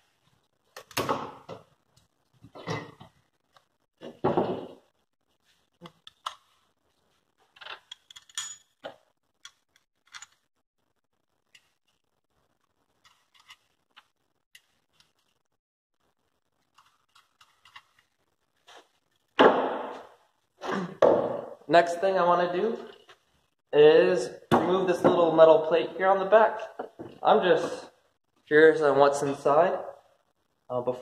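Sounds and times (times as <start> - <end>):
loud thud: 19.4 - 20.0.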